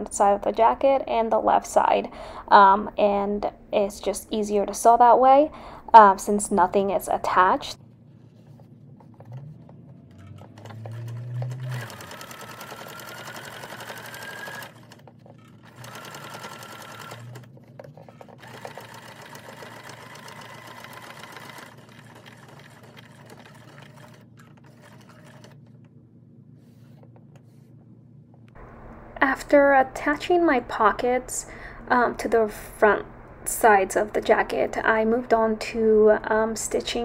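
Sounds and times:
sewing machine motor whine: 9.3s - 25.6s.

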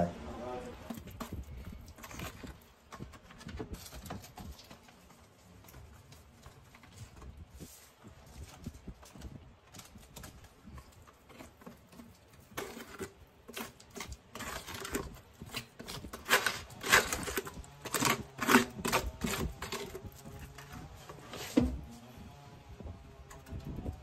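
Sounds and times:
mortar scraping in plastic bucket: 0.7s - 22.1s.

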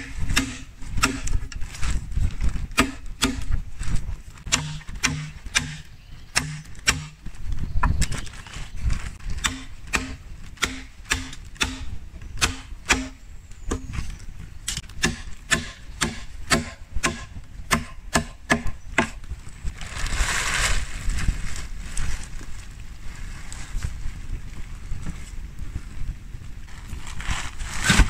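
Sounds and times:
machete chopping bamboo: 0.0s - 1.6s, 2.8s - 3.6s, 4.4s - 7.2s, 9.4s - 14.1s, 14.7s - 19.2s.

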